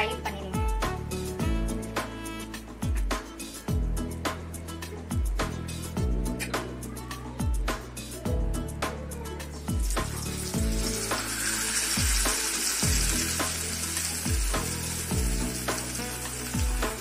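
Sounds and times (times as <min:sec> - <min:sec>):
background music with beat: 0:00.0 - 0:17.0
fish sizzling in hot oil: 0:09.8 - 0:17.0.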